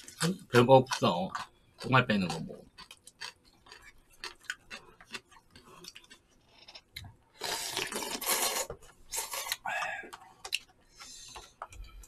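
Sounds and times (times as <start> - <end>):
loud noodle slurp: 7.4 - 9.6.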